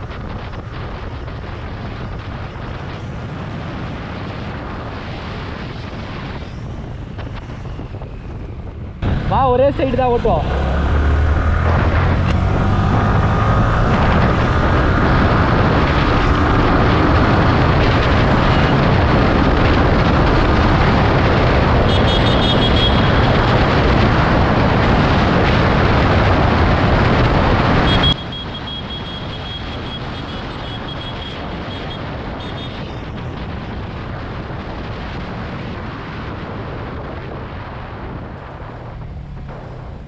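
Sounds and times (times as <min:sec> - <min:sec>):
wind rush on microphone: 0:00.0 - 0:40.0
motorcycle engine running: 0:27.8 - 0:33.2.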